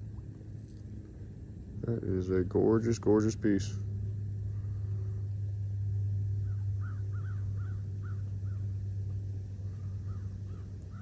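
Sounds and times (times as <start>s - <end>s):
steady low hum: 0.0s - 11.0s
crow cawing: 6.8s - 8.6s, 9.7s - 11.0s.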